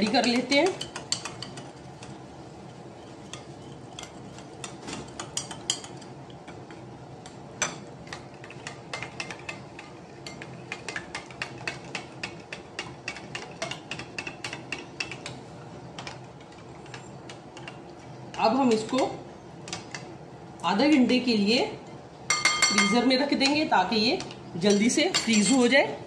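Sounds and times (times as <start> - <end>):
metal spoon clinking bowl: 22.3 - 23.0.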